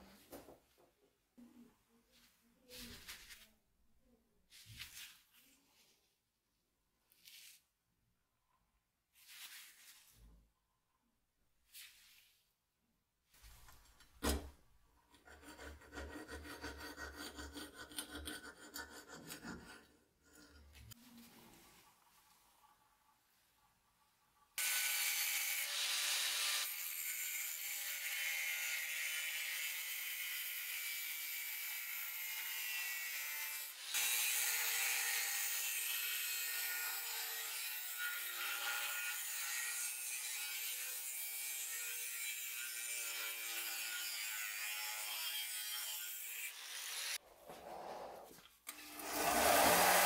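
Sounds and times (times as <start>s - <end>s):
angle grinder cutting steel: 24.6s - 47.2s, 48.7s - 50.0s.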